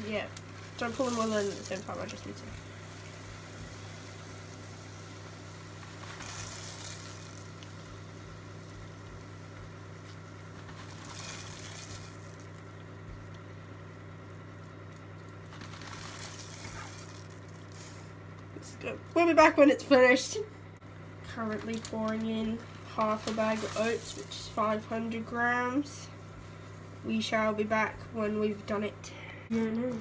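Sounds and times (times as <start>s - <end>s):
syrup sizzling and bubbling: 0.0s - 20.2s, 20.8s - 27.0s
steady low hum: 0.0s - 30.0s
spatula stirring oats: 5.6s - 13.1s.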